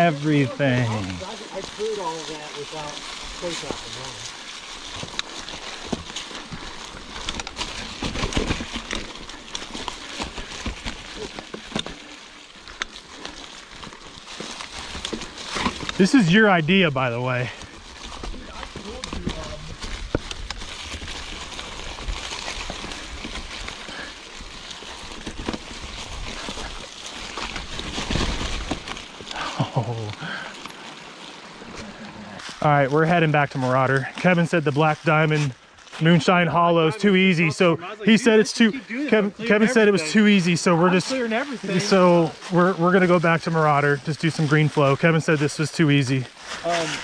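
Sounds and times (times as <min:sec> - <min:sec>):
mountain bike clattering on rocks: 0:01.2 - 0:16.0, 0:17.7 - 0:29.3.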